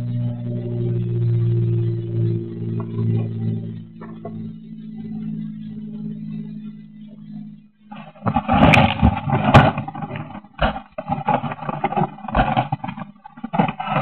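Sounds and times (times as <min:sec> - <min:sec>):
leaves and twigs scraping: 0:07.9 - 0:14.0.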